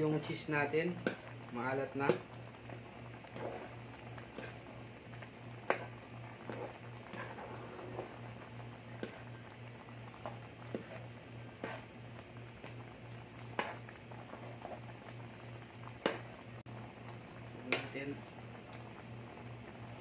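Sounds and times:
steady low hum: 0:00.0 - 0:20.0
spoon stirring sauce in a pan: 0:01.0 - 0:14.8.

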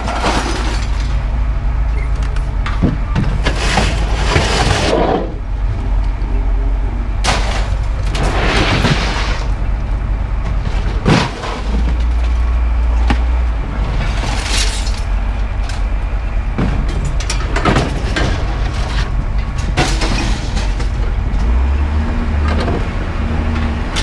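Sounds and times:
scrap metal crashing onto pile: 0:00.0 - 0:01.2, 0:03.4 - 0:05.2, 0:07.2 - 0:09.6, 0:10.5 - 0:12.5, 0:13.8 - 0:15.1, 0:16.6 - 0:21.2
steady low rumble: 0:00.0 - 0:24.0.

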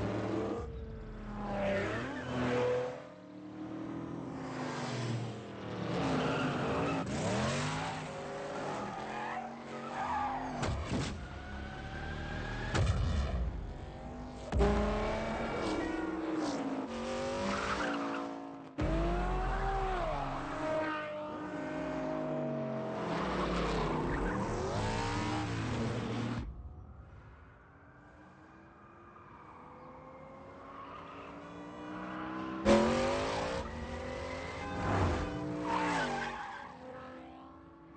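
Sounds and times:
car engine revving: 0:11.5 - 0:26.5.

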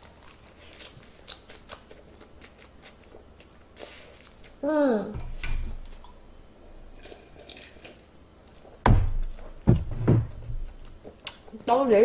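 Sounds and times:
dull low thuds: 0:08.8 - 0:10.9.

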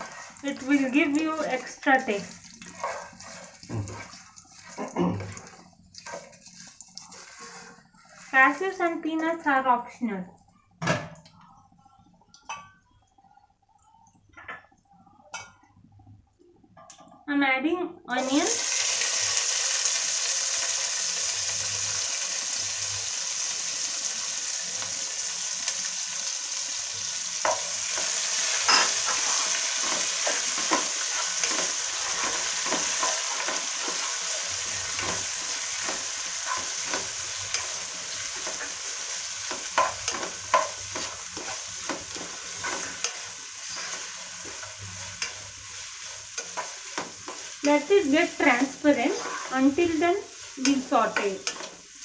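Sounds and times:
onions sizzling in oil: 0:00.0 - 0:09.8, 0:18.1 - 0:52.0
spatula scraping a pot: 0:02.6 - 0:08.7, 0:27.5 - 0:47.7, 0:48.9 - 0:51.8.

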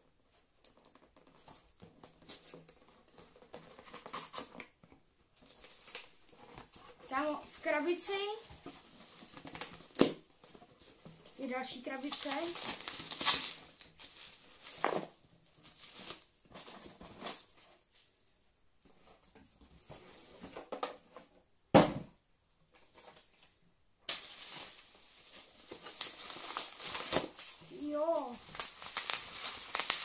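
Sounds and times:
bubble wrap crinkling: 0:05.4 - 0:18.0, 0:24.1 - 0:30.0.

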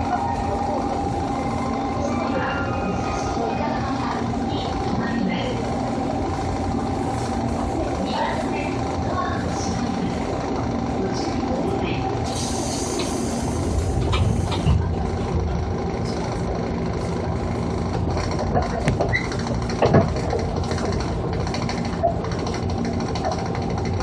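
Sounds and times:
train running rumble: 0:00.0 - 0:24.0
hiss: 0:12.2 - 0:14.7.

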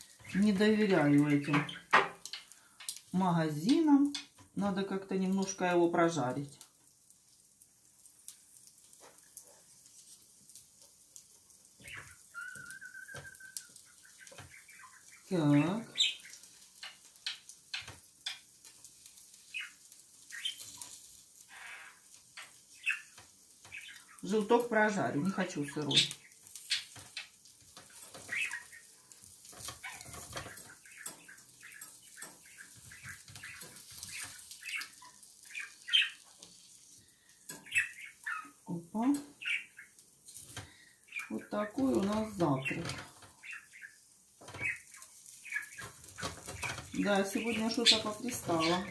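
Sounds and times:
faint egg sizzle: 0:00.0 - 0:48.9
wooden spatula tapping grill plate: 0:01.5 - 0:03.0
whistled tone: 0:12.4 - 0:13.7
spatula scraping grill plate: 0:26.4 - 0:38.3.

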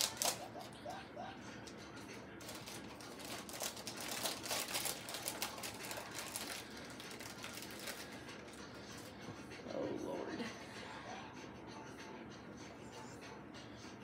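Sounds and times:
plastic wrapper crinkling: 0:00.0 - 0:00.5, 0:02.4 - 0:08.6.

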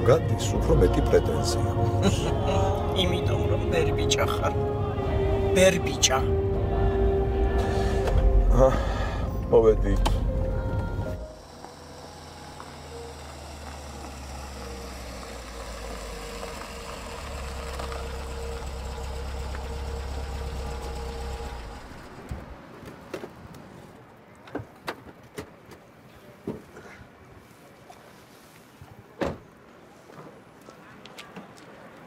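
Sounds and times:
car engine humming: 0:00.0 - 0:22.8.

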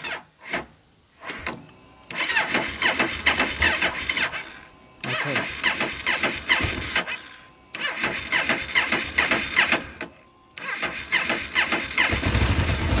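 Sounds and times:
electric starter cranking engine: 0:00.0 - 0:13.0
motorcycle engine running: 0:10.8 - 0:13.0.

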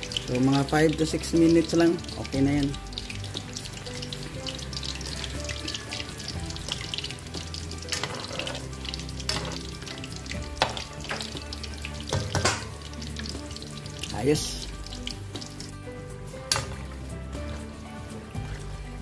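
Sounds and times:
deep-frying sizzle in oil: 0:00.0 - 0:19.0
ladle knocking against pan: 0:12.0 - 0:12.7.

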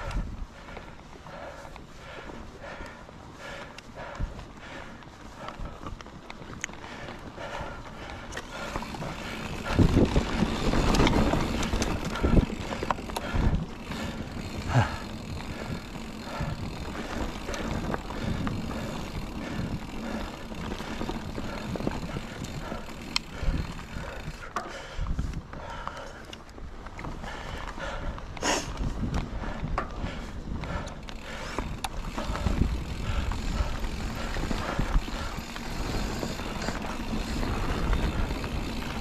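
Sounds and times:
bike knocking and rattling: 0:00.0 - 0:39.0
tyres rushing on dirt: 0:00.6 - 0:24.6, 0:26.7 - 0:39.0.

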